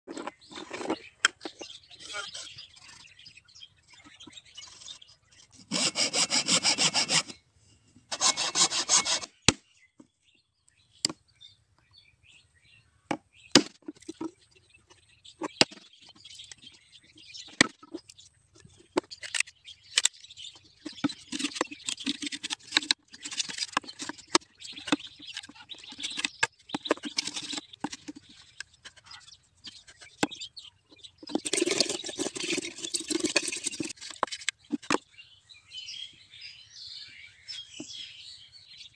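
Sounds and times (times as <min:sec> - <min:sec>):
blade scraping bamboo: 0:04.6 - 0:07.4, 0:08.1 - 0:09.5, 0:20.8 - 0:30.5, 0:31.2 - 0:35.0
blade sawing bamboo: 0:05.5 - 0:07.4, 0:08.1 - 0:09.5, 0:21.1 - 0:28.1.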